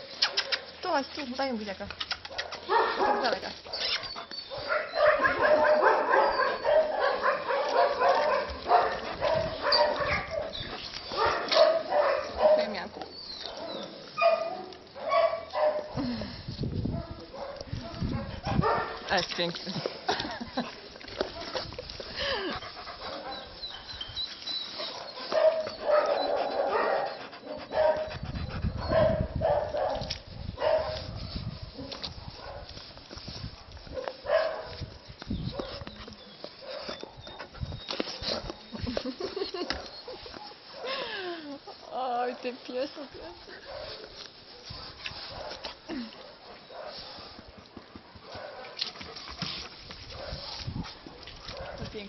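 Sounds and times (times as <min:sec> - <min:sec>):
dogs barking and yelping: 0:02.3 - 0:16.1, 0:16.9 - 0:19.0, 0:21.2 - 0:31.2, 0:33.7 - 0:34.9, 0:35.5 - 0:41.9, 0:43.6 - 0:47.6.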